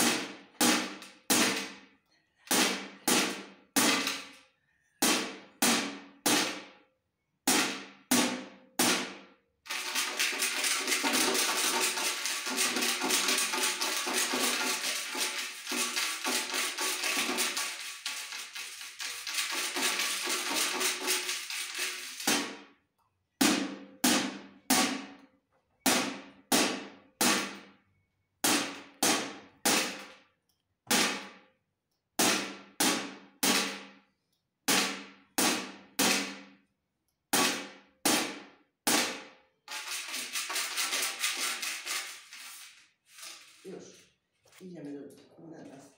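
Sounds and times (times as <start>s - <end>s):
drumstick hitting metal tin: 7.5s - 22.7s, 37.4s - 42.3s.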